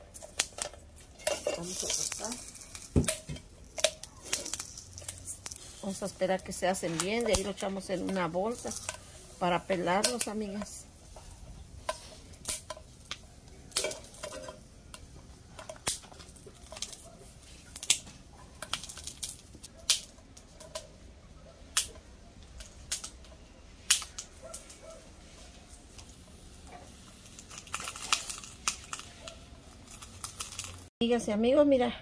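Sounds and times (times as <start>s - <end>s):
chiles popping while toasting: 0.0s - 30.9s.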